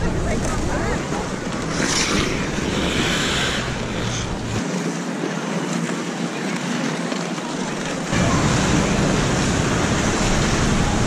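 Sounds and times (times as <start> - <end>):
skate blades scraping ice: 0.4 - 4.6.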